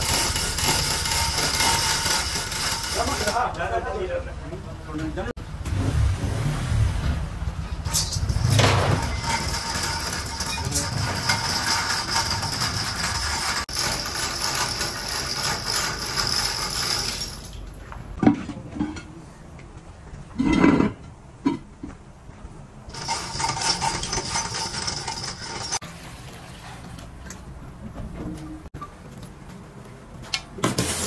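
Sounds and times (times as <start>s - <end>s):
steady machine noise: 0.0s - 3.5s, 8.3s - 17.3s
metal parts clanking: 7.7s - 17.6s, 22.9s - 25.8s.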